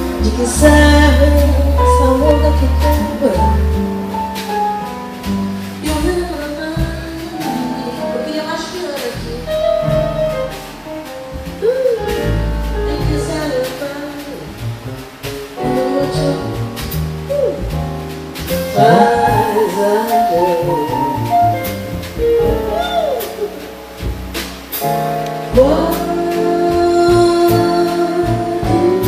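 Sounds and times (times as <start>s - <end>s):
drums: 0.0s - 29.0s
piano: 0.0s - 29.0s
upright bass: 0.0s - 29.0s
woman singing through microphone: 5.9s - 9.2s, 18.8s - 20.9s, 25.6s - 29.0s.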